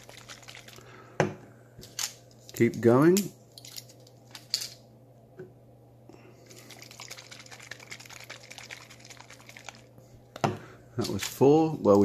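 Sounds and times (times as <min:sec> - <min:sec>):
water sloshing in shaken bottle: 0:00.0 - 0:00.8, 0:06.4 - 0:10.0.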